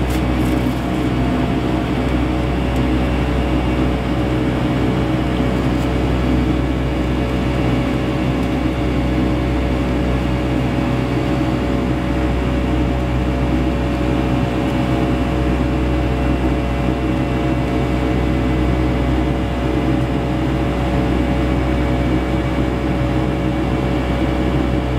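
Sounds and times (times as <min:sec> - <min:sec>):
deep hum with held tones: 0:00.0 - 0:24.9
jet engine cabin drone: 0:00.0 - 0:24.9.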